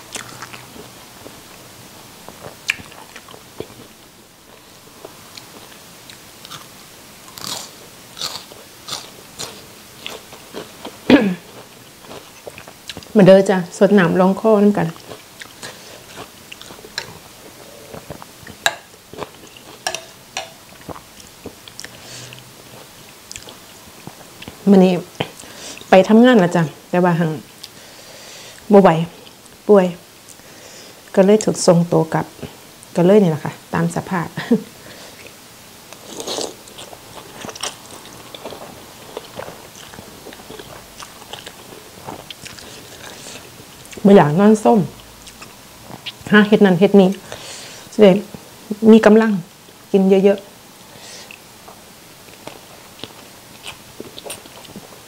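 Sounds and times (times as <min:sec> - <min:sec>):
chewing: 0:00.1 - 0:01.4, 0:02.3 - 0:03.9, 0:04.5 - 0:06.7, 0:07.3 - 0:13.1, 0:14.8 - 0:24.6, 0:35.2 - 0:44.0, 0:45.0 - 0:46.3, 0:51.3 - 0:55.0.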